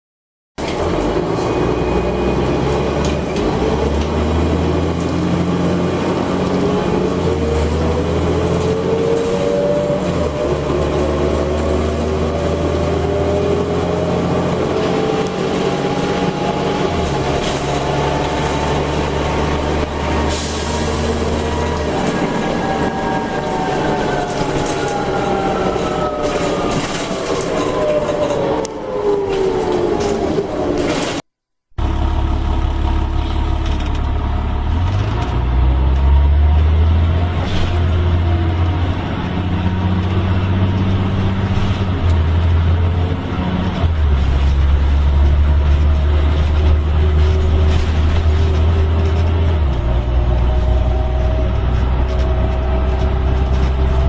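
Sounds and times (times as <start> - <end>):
bus engine drone: 0.6 - 54.0.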